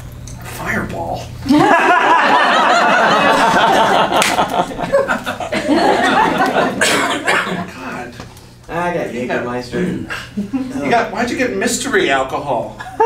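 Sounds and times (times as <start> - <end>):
audience laughing loudly: 1.5 - 7.7.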